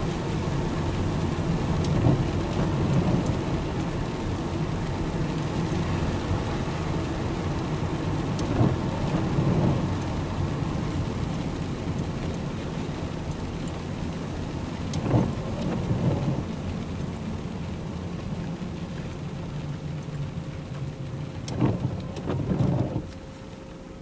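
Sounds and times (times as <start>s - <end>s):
car engine and road rumble: 0.0s - 24.0s
rain on windscreen: 0.0s - 24.0s
rumbling thumps: 15.0s - 16.4s.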